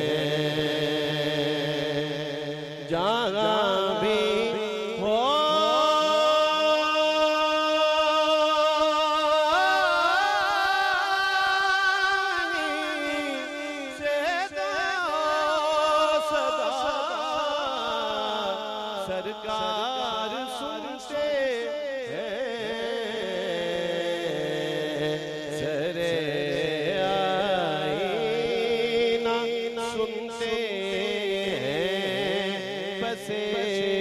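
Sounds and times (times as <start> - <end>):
man chanting into a microphone: 0.0 - 34.0.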